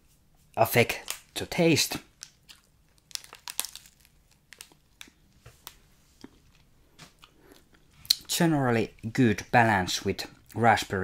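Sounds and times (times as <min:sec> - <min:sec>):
wrapper crinkling: 0:00.9 - 0:05.8.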